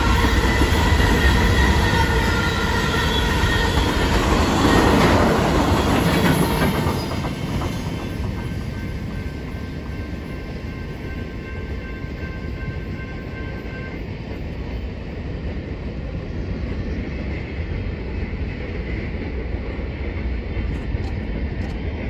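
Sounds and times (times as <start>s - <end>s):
freight train rumbling on rails: 0.0s - 22.0s
railroad crossing bell ringing: 8.2s - 14.1s.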